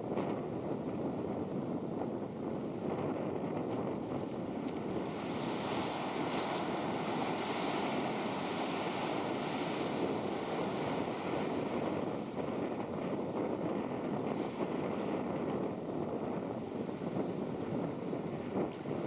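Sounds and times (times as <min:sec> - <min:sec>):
wind buffeting microphone: 0:00.0 - 0:19.0
ocean surf breaking: 0:04.1 - 0:19.0.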